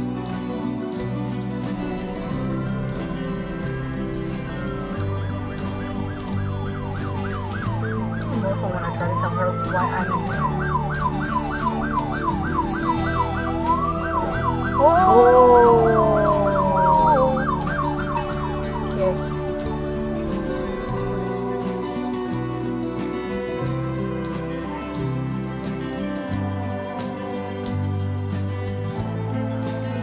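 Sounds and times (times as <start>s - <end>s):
police siren yelping: 2.8s - 22.0s.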